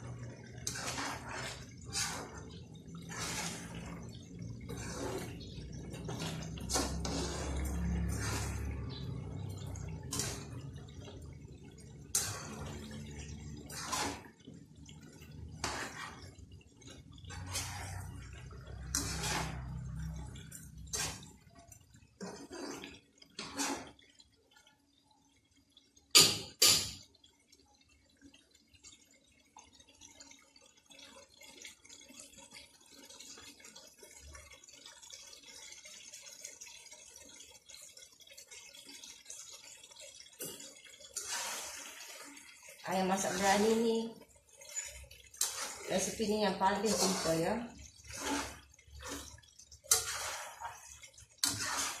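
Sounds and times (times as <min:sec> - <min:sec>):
sauce bubbling: 0:00.0 - 0:52.0
fork scraping wok: 0:00.7 - 0:09.1, 0:13.7 - 0:14.3, 0:15.6 - 0:16.3, 0:17.3 - 0:18.2, 0:18.9 - 0:19.8, 0:20.9 - 0:21.4, 0:22.2 - 0:23.9, 0:45.4 - 0:48.7, 0:49.9 - 0:52.0.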